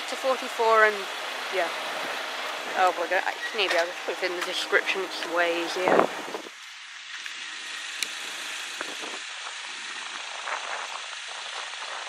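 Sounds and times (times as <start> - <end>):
steady outdoor hiss: 0.0 - 12.0.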